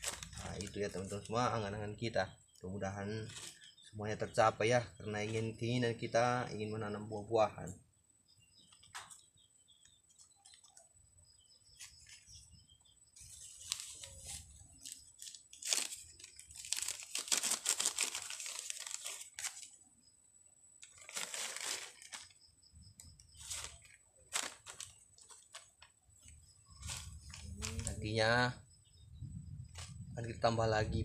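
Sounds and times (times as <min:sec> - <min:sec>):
plastic bag crinkling: 0:00.0 - 0:01.3, 0:13.2 - 0:19.8, 0:20.8 - 0:22.4, 0:23.3 - 0:28.0.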